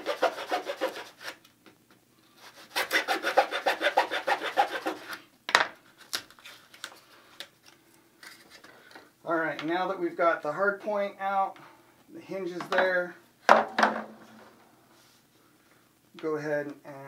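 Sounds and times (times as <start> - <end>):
saw cutting wood: 0.0 - 1.4, 2.4 - 5.2.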